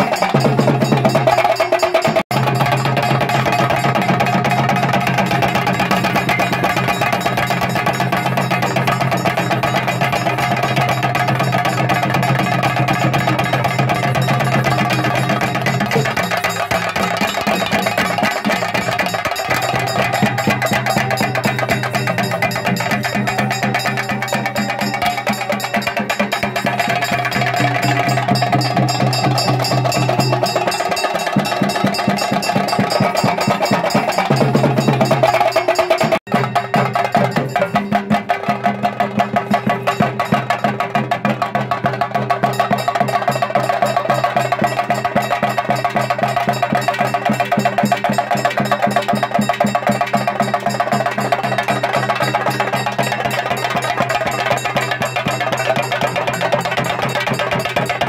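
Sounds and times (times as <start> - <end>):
fast drumming: 0.0 - 58.0.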